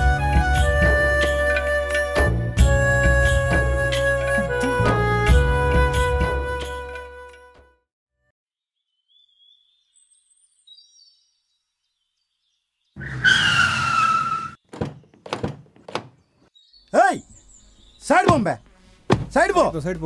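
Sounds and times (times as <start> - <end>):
car tyre squeal: 13.0 - 14.6
car doors thunking: 14.7 - 16.1, 19.1 - 19.4.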